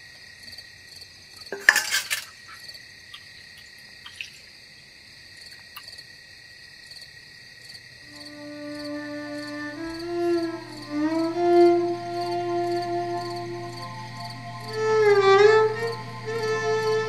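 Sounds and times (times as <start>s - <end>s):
crickets chirping: 0.0s - 17.0s
steel utensils clinking: 1.5s - 2.4s
soft music with held notes: 8.2s - 17.0s.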